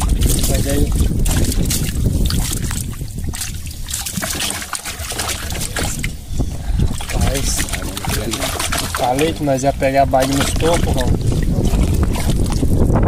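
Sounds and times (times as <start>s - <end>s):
water splashing around boat: 0.0s - 13.0s
steady low rumble: 5.0s - 13.0s.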